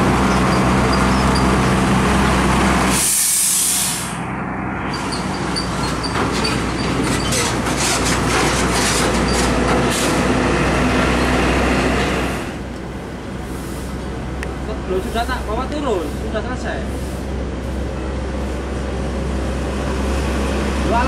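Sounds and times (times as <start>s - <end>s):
trailer clattering: 0.0s - 3.1s, 4.0s - 21.0s
truck diesel engine: 0.0s - 21.0s
air brake hiss: 2.9s - 4.2s.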